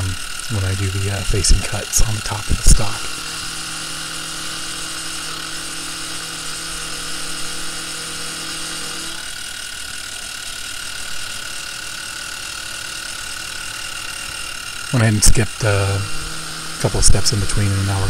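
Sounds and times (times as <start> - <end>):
low hum: 0.0 - 9.4
milling cutter cutting metal: 0.0 - 18.0
spindle motor whining: 0.0 - 18.0.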